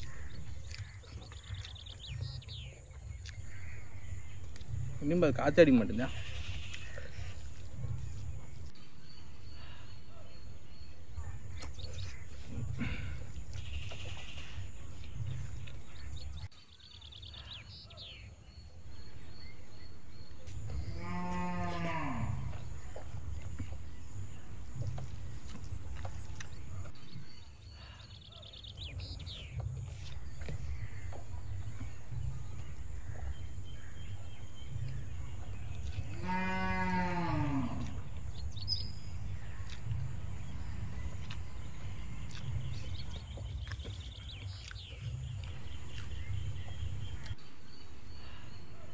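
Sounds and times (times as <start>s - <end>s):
steady low rumble: 0.0s - 16.5s, 18.7s - 27.5s, 29.8s - 36.3s, 37.0s - 44.4s, 45.0s - 48.9s
cattle mooing: 20.7s - 22.8s, 36.0s - 38.2s.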